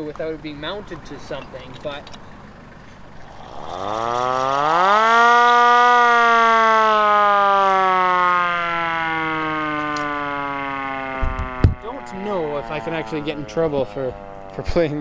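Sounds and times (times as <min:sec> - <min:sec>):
hand-crank siren wailing: 0:03.2 - 0:14.8.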